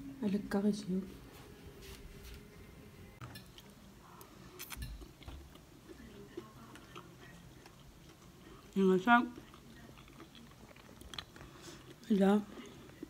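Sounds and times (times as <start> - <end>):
person chewing food: 3.2 - 13.0.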